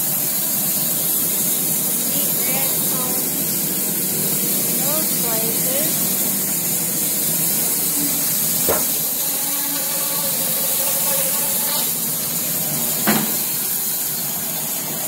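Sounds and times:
steady hiss: 0:00.0 - 0:15.0
wood chunks knocking: 0:08.6 - 0:09.0.

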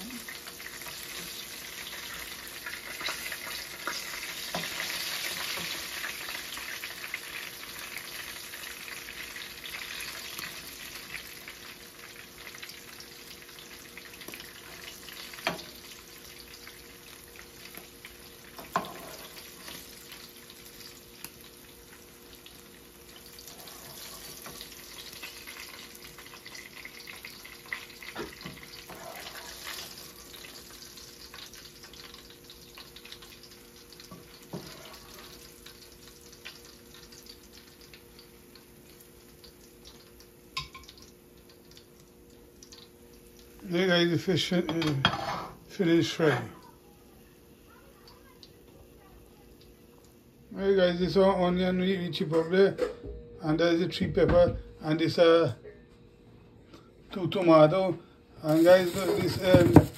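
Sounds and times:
fish sizzling in oil: 0:00.0 - 0:50.7, 0:58.4 - 0:59.9
wooden spoon knocking pan: 0:58.6 - 0:59.9.

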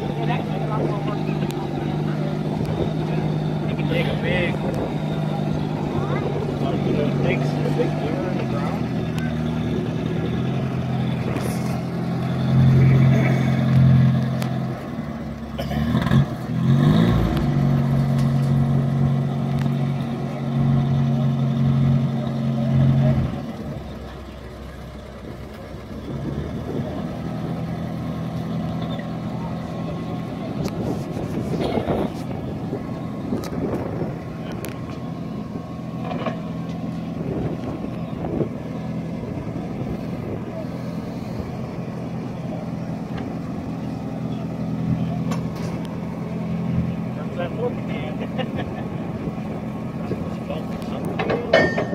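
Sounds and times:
jeep engine running: 0:00.0 - 0:51.9.

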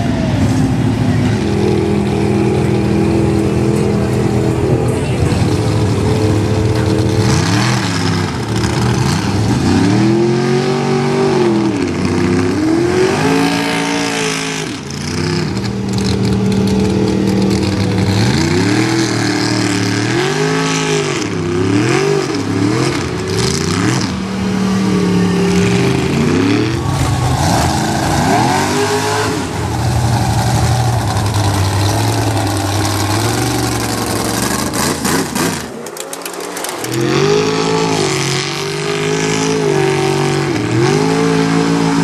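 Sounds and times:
truck engine revving: 0:00.0 - 0:42.0
tyres churning through mud: 0:00.0 - 0:42.0.

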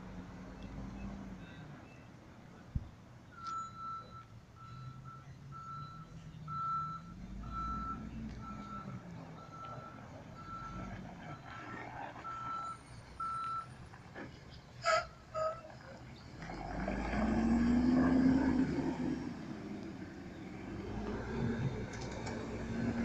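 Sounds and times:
truck reverse alarm beeping: 0:03.3 - 0:13.8.

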